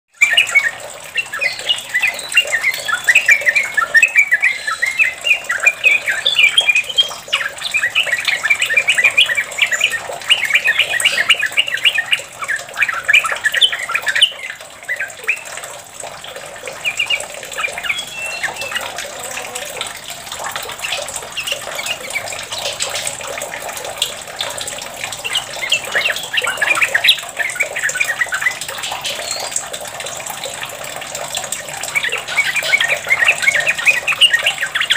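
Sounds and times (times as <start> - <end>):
splashing water: 0.1 - 34.9
bird singing chattering runs: 16.7 - 19.9, 25.1 - 29.6.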